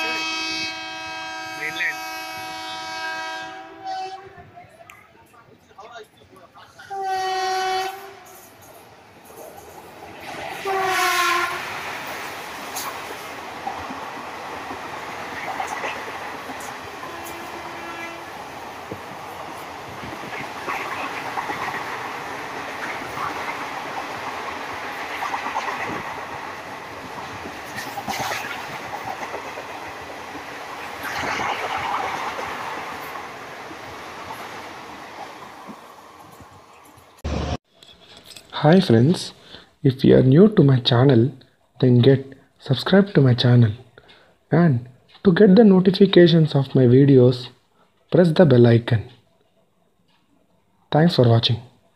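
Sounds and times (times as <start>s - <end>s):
train air horn blasts: 0.0s - 4.4s, 6.8s - 8.5s, 10.6s - 11.8s, 17.0s - 18.3s
train rushing and rumbling: 0.0s - 4.7s, 6.5s - 37.6s.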